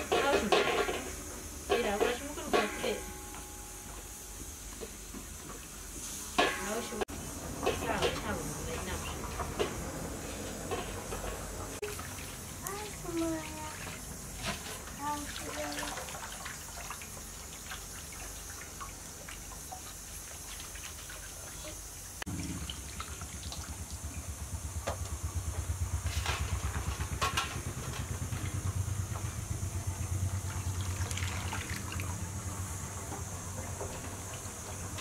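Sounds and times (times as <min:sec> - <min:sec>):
hands washing in water basin: 0:11.8 - 0:24.1, 0:30.4 - 0:32.2
water dripping into metal bowl: 0:22.6 - 0:24.3.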